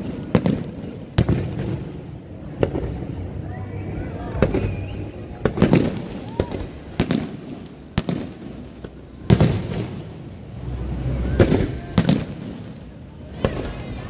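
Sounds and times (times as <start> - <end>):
fireworks bursting bangs: 0.0 - 3.4, 4.2 - 14.0.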